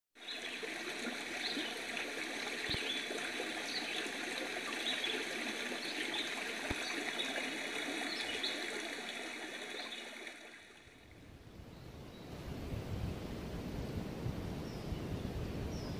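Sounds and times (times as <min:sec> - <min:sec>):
stream trickling over rocks: 0:00.2 - 0:11.2.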